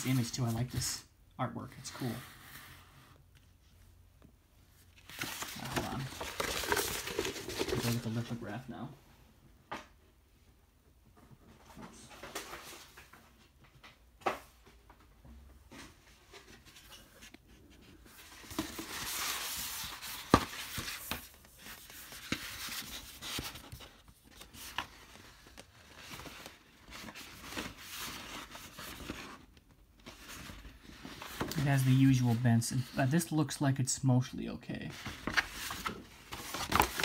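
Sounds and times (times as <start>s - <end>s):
paper rustling and crinkling: 4.9s - 8.5s, 15.7s - 33.3s, 34.9s - 37.0s.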